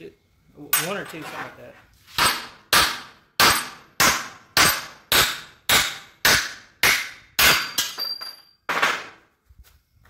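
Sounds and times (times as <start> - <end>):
hammer striking steel plate: 2.2 - 9.2.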